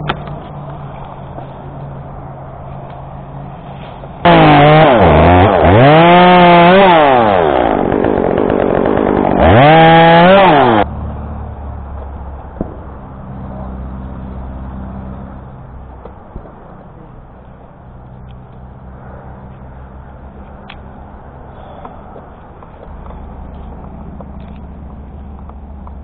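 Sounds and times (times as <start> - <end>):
chainsaw revving: 4.2 - 10.9.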